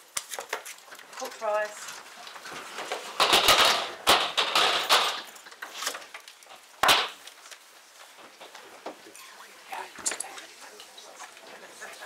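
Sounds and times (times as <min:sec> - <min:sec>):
crowd rustling and shuffling: 0:07.2 - 0:12.0.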